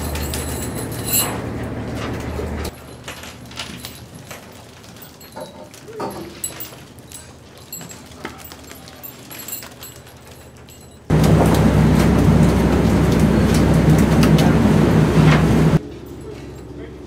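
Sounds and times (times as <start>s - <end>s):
boat engine drone: 11.1s - 17.0s.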